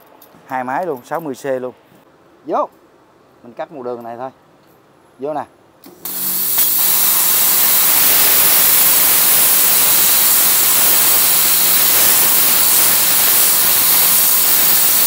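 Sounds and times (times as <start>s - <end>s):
plasma cutter hissing: 6.0s - 15.0s.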